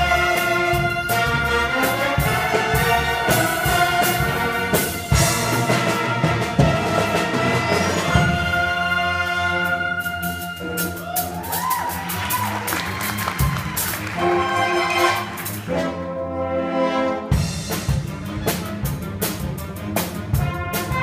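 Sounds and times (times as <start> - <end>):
drum hits: 0.0 - 8.6
concert band playing: 0.0 - 21.0.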